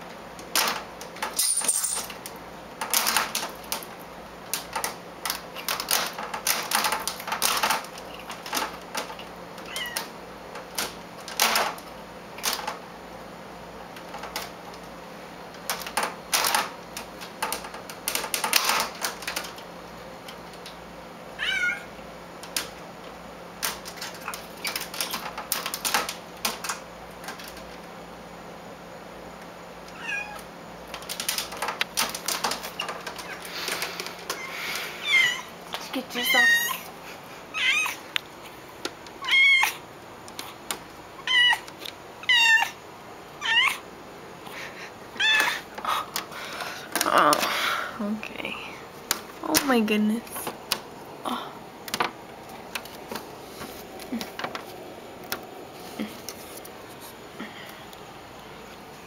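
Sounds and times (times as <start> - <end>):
cat meowing: 9.7 - 10.0, 21.4 - 21.9, 29.9 - 30.4, 34.4 - 35.5, 37.5 - 38.0, 39.2 - 39.8, 41.2 - 42.8, 43.4 - 43.8, 45.2 - 45.6.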